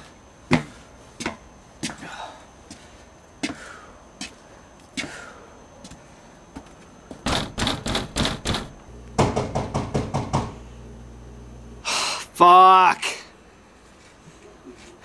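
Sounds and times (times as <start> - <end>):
rapid knocking: 7.3 - 10.5
low steady hum: 8.0 - 15.0.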